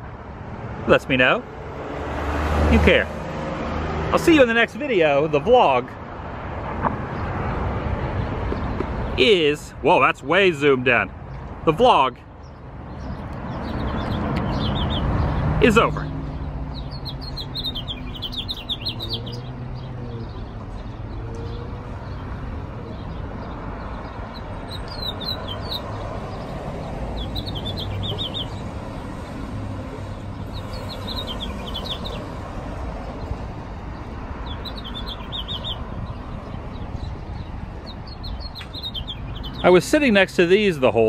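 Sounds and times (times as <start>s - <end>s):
street traffic hum: 0.0s - 41.0s
songbird chirping: 11.0s - 41.0s.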